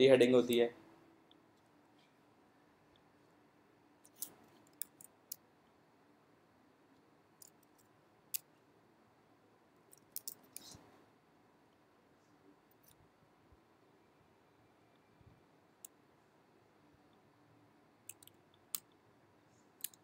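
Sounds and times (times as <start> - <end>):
faint steady hum: 0.0 - 20.0
computer mouse clicks: 18.1 - 19.0, 19.8 - 20.0.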